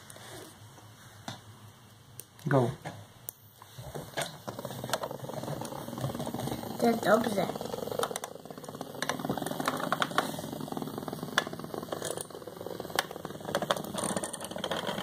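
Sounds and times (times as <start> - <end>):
toy bumping plastic walls: 4.0 - 15.0
toy bug buzzing and rattling: 4.1 - 15.0.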